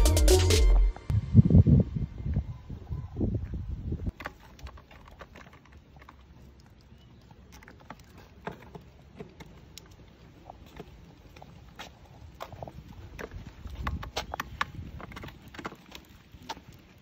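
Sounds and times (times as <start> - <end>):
wagon wheels rolling over bricks: 4.0 - 17.0.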